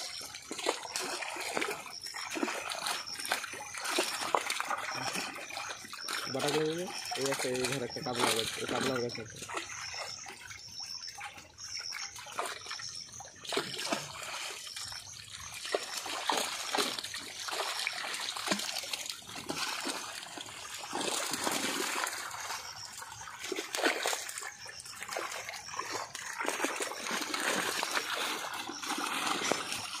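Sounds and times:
river water splashing: 0.0s - 30.0s.

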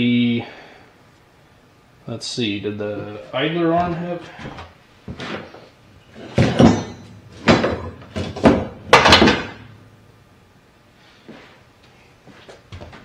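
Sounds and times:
steel parts clunking and knocking: 6.2s - 9.7s.

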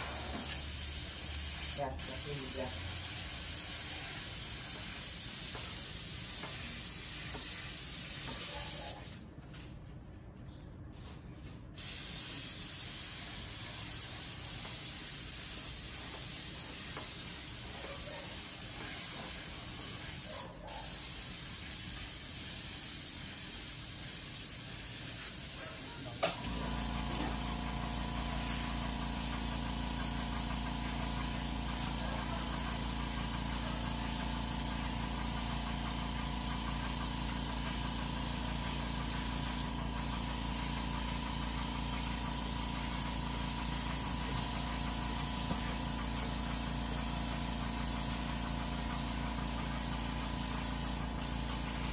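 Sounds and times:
paint spray gun hissing: 0.0s - 9.0s, 11.8s - 51.9s.

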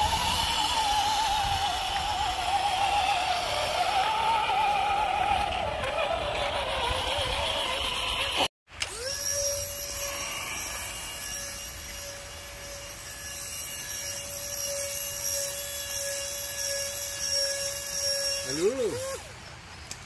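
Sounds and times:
winch motor whining: 0.0s - 19.3s.

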